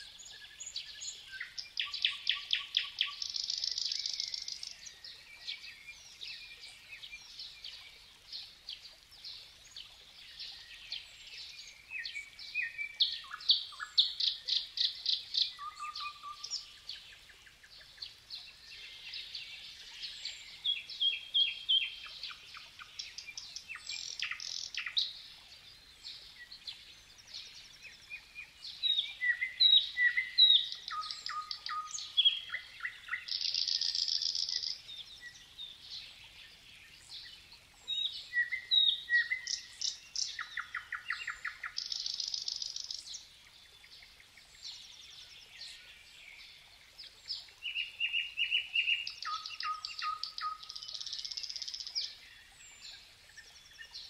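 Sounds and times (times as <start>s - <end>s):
songbirds singing: 0.0s - 54.0s.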